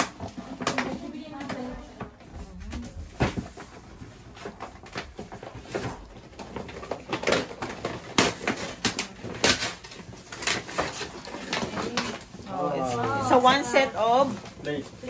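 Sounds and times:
wrapping paper crinkling: 2.4 - 15.0.

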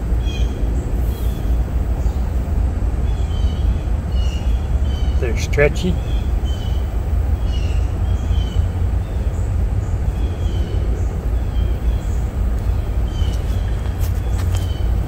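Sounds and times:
small bird chirping: 3.0 - 15.0
wind buffeting microphone: 6.0 - 15.0.

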